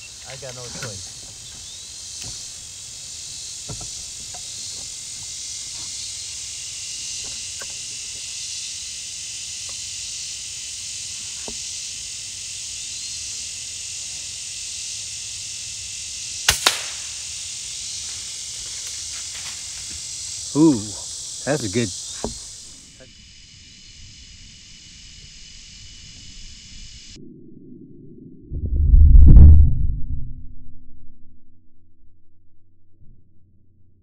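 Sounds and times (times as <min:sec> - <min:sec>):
steady high-pitched hiss: 0:00.0 - 0:27.2
air rifle firing: 0:16.5 - 0:17.2.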